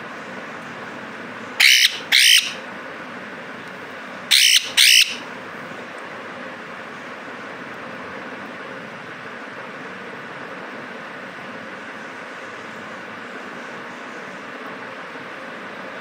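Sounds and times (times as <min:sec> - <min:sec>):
parrot squawking: 0:01.6 - 0:02.6, 0:04.3 - 0:05.3.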